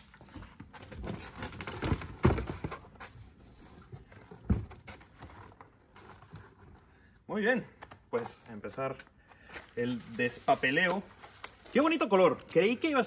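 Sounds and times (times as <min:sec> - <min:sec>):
cardboard scuffing and rustling: 0:00.1 - 0:06.6.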